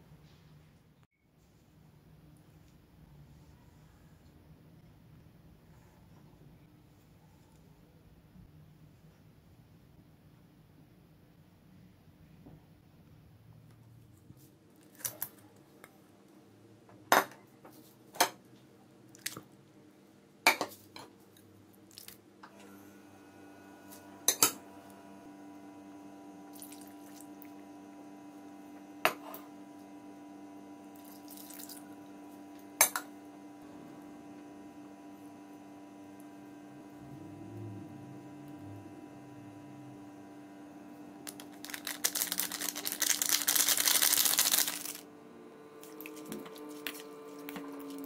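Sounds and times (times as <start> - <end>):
steady hum: 23.3 - 48.0.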